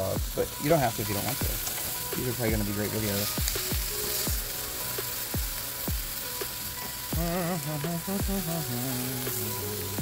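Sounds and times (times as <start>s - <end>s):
chicken sizzling on a grill: 0.0s - 10.0s
wavering melody: 6.7s - 10.0s.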